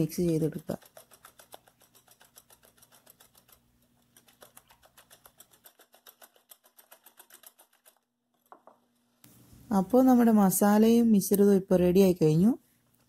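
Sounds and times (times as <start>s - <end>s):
whisk ticking against glass bowl: 0.0s - 8.0s.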